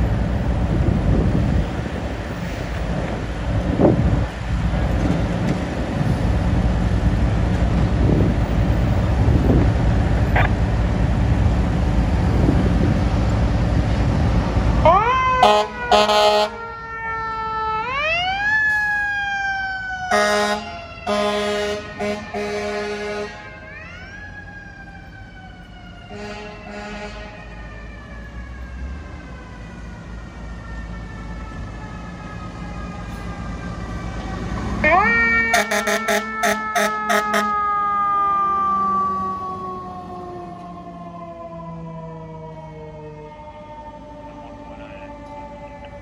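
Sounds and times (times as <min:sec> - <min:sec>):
wind rumbling on microphone: 0:00.0 - 0:14.9
siren wailing: 0:10.2 - 0:10.6, 0:14.8 - 0:46.0
air horn blasts: 0:15.4 - 0:16.6, 0:20.1 - 0:23.5, 0:26.1 - 0:27.4, 0:35.5 - 0:37.5.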